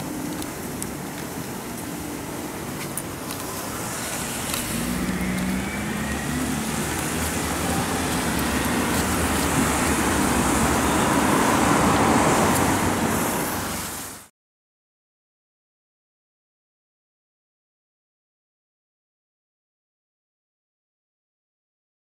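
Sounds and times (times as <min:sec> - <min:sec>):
tyres hissing on wet road: 0:00.0 - 0:14.3
vehicle engine noise: 0:00.0 - 0:14.3.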